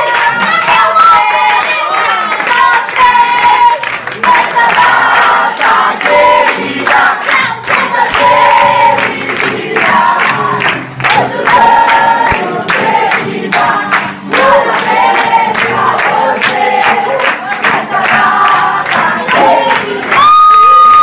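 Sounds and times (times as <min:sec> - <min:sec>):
group of people singing: 0:00.0 - 0:20.2
people clapping along: 0:00.0 - 0:21.0.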